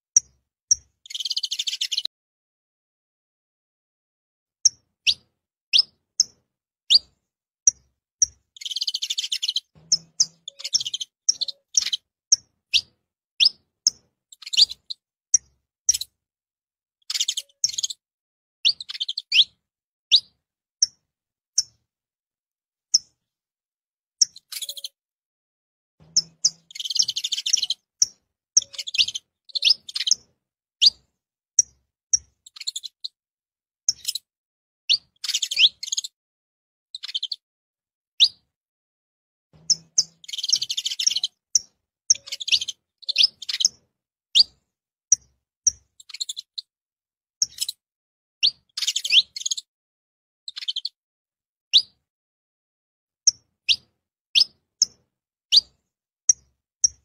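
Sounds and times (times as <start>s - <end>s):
finch calling and singing: 0.2s - 2.1s, 4.6s - 16.2s, 17.0s - 18.0s, 18.6s - 21.0s, 24.2s - 25.0s, 26.0s - 33.2s, 33.9s - 34.3s, 34.9s - 36.2s, 37.0s - 37.4s, 38.2s - 38.4s, 39.6s - 46.7s, 47.4s - 47.8s, 48.4s - 49.7s, 50.5s - 51.0s, 51.7s - 52.0s, 53.3s - 57.0s.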